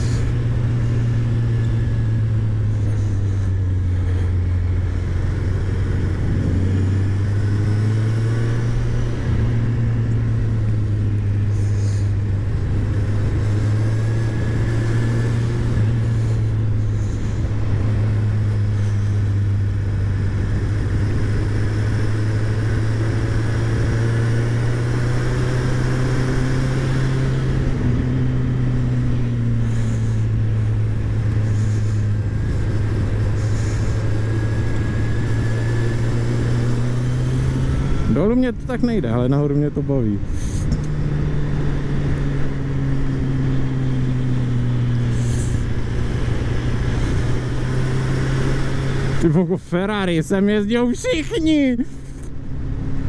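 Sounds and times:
motorcycle engine revving: 0.0s - 53.0s
wind noise rushing: 5.2s - 9.8s.

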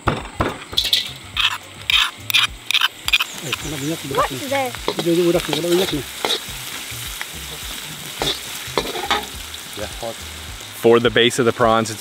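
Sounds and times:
oil sizzling: 0.6s - 12.0s
metal spatula scraping wok: 0.7s - 9.4s.

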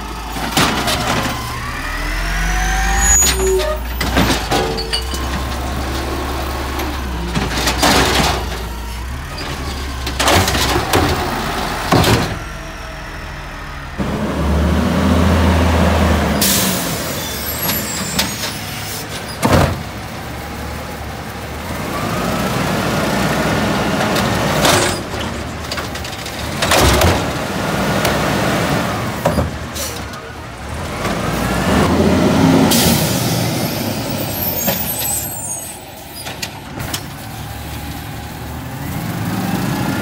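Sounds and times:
garbage truck engine revving: 0.0s - 40.0s
bins and metal banging: 0.2s - 2.1s, 3.0s - 12.7s, 23.9s - 28.2s.

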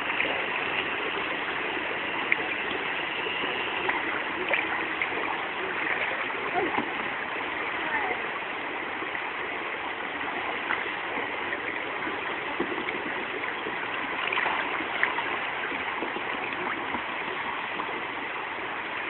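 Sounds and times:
rushing river water: 0.0s - 19.0s.

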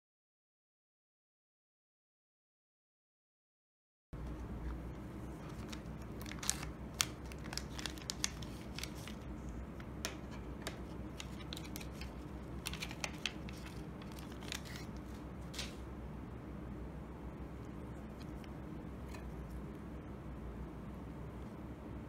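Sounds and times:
plastic cassette set on table: 4.2s - 9.2s, 9.8s - 15.8s
low steady hum: 4.2s - 22.0s
foil pouch crinkling and tearing: 5.2s - 9.4s, 10.1s - 15.8s.

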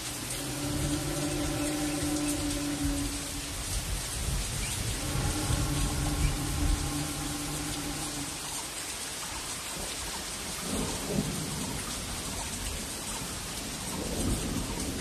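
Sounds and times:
low rumble: 0.0s - 9.0s
heavy rain: 0.0s - 15.0s.

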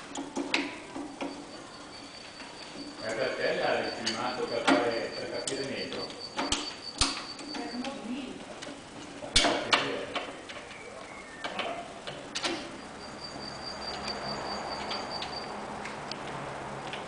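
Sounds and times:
steady high whine: 0.0s - 17.0s
wheelchair seat clicks and knocks: 0.2s - 1.4s.

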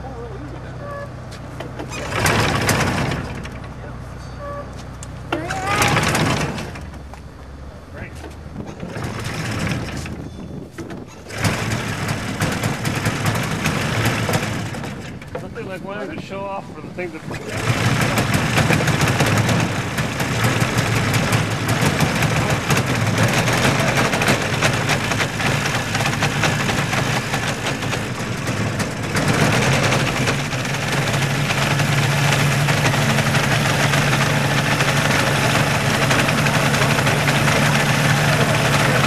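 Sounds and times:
small airplane engine running: 1.6s - 7.2s, 8.6s - 39.0s.

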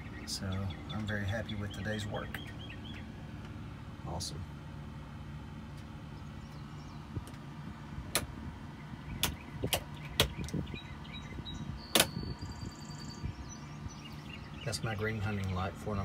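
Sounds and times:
steady low hum: 0.0s - 16.0s
rocker switches clicking: 8.1s - 8.3s, 9.2s - 10.6s.

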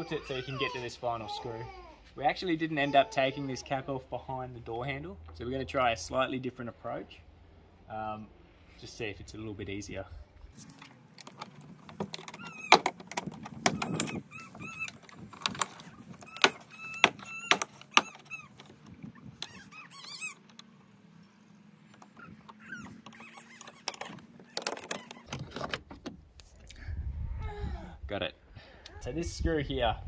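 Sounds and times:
plastic squeaks: 10.6s - 20.7s, 21.9s - 26.2s
plastic door trim clicks and knocks: 11.2s - 19.6s, 22.0s - 26.2s.

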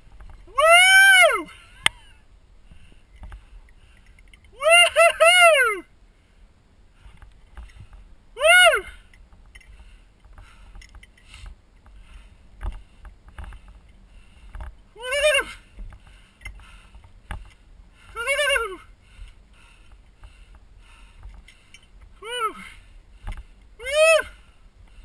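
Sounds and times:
person calling: 0.5s - 2.2s, 4.5s - 5.9s, 8.4s - 9.1s, 15.0s - 15.7s, 18.0s - 18.9s, 22.2s - 22.8s, 23.8s - 24.4s.

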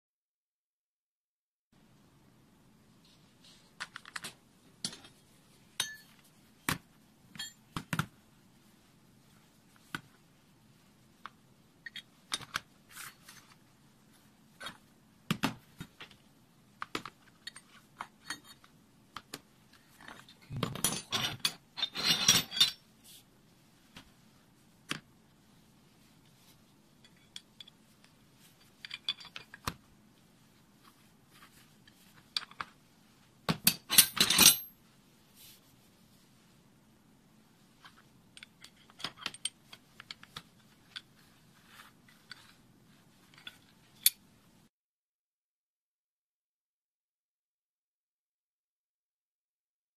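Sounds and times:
metal tools clicking and clinking: 5.8s - 6.2s, 20.0s - 22.8s, 28.6s - 29.7s, 33.6s - 34.7s.

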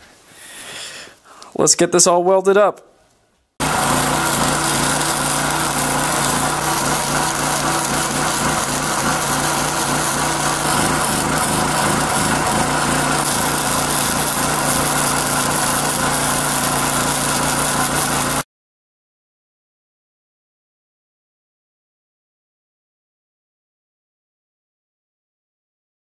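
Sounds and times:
welder crackling buzz: 3.6s - 18.5s.

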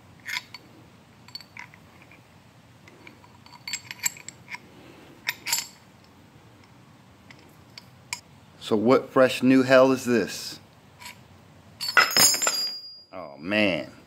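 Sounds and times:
steel tool parts clinking: 0.2s - 0.6s, 2.9s - 4.6s, 5.2s - 5.8s, 11.8s - 13.0s.

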